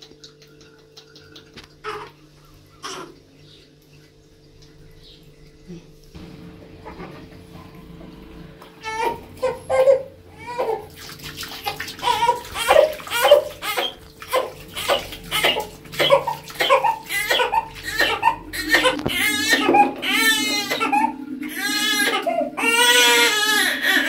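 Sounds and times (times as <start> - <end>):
water splashing: 6.1 - 24.0
baby fussing and crying: 15.3 - 24.0.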